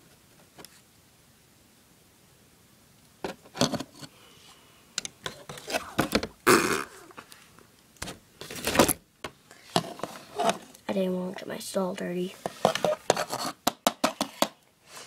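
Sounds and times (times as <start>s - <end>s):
plastic toys clicking and knocking: 12.5s - 14.6s.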